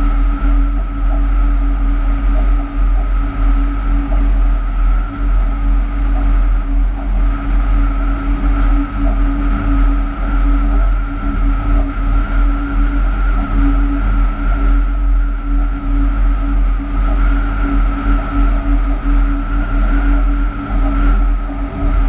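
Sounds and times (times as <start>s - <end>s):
constant hum: 0.0s - 22.0s
high steady whine: 0.0s - 22.0s
wheels rumbling on rail: 21.5s - 22.0s.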